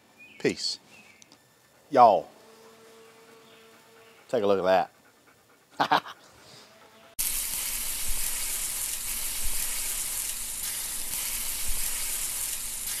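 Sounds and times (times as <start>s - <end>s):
food sizzling on griddle: 7.2s - 13.0s.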